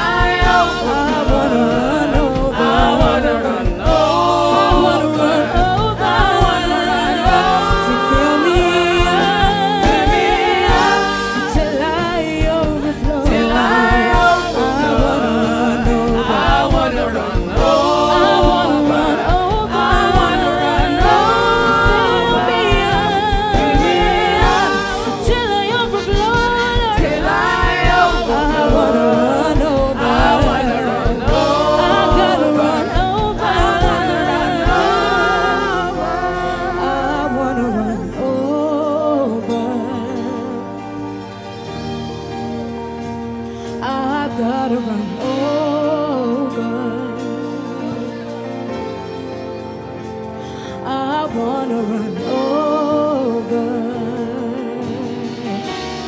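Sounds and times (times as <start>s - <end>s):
voices singing with vibrato: 0.0s - 41.1s
instrumental backing with bass: 0.0s - 56.0s.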